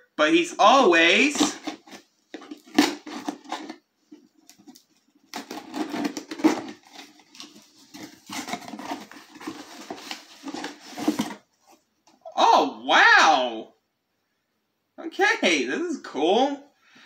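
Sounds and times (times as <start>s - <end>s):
packaging rustling and crinkling: 1.2s - 11.8s.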